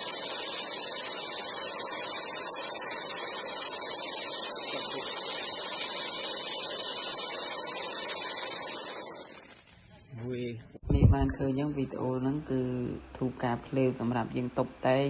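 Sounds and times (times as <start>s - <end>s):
fountain firework hissing: 0.0s - 10.8s.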